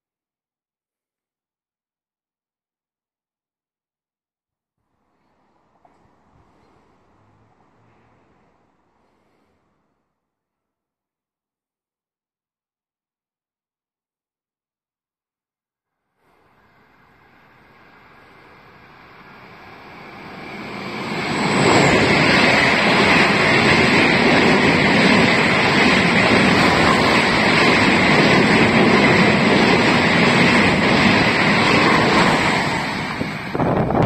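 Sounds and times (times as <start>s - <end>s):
passenger train passing: 5.2s - 9.8s, 16.2s - 34.0s.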